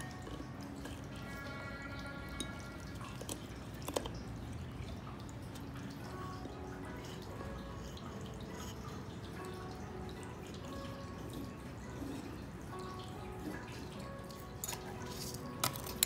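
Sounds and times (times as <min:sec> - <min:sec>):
water dripping and trickling: 0:00.0 - 0:16.0.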